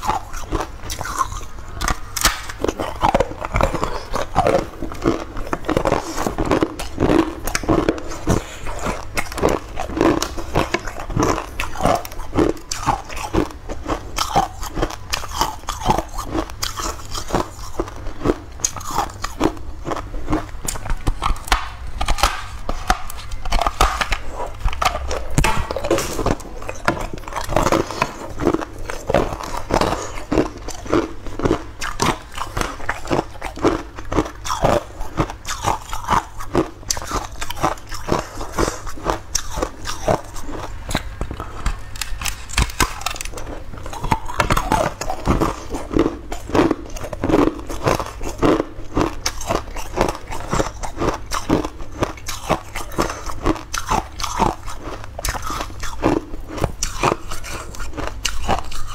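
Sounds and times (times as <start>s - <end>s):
person crunching ice: 0.0s - 58.9s.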